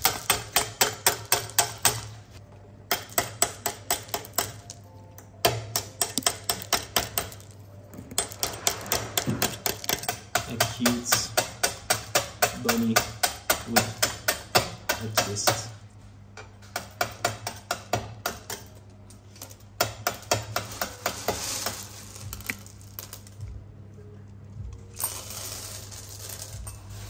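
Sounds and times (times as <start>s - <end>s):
hard candy clattering on steel: 0.0s - 2.2s, 5.4s - 15.7s, 16.7s - 23.6s, 24.9s - 27.0s.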